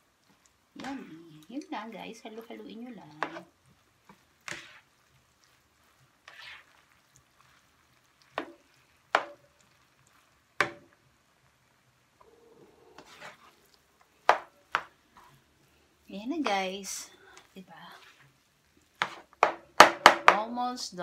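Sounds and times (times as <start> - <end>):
spatula scraping pan: 0.3 - 10.9, 12.8 - 15.5, 16.2 - 19.9
spatula knocking on pan: 8.4 - 9.5, 10.6 - 11.0, 14.2 - 14.9, 19.0 - 20.5.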